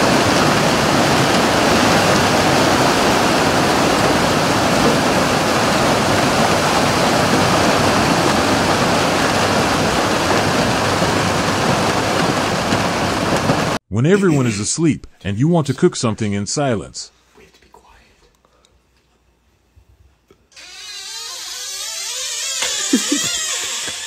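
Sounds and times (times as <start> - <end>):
churning water: 0.0 - 13.8.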